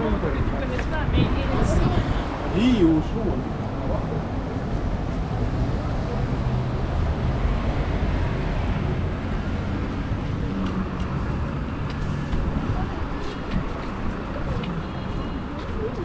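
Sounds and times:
cars passing: 0.0 - 16.0.

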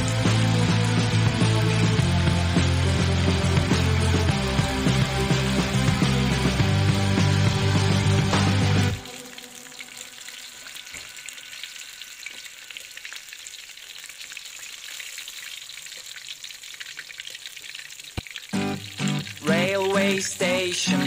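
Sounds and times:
background music: 0.0 - 12.8, 18.6 - 21.0
food deep-frying in oil: 0.0 - 21.0.

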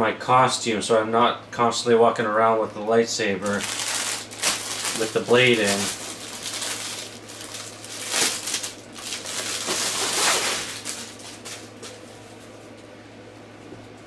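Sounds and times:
packaging rustling and crinkling: 3.4 - 12.8.

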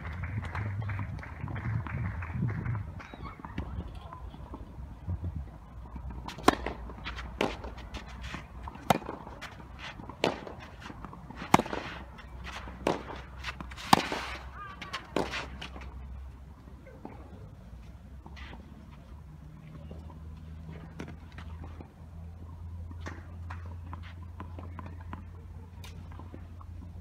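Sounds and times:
rackets striking tennis ball: 5.9 - 16.0.

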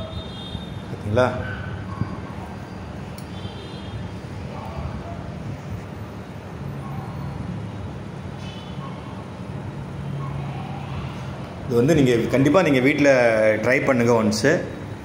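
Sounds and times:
faint distant voices: 0.0 - 14.9.

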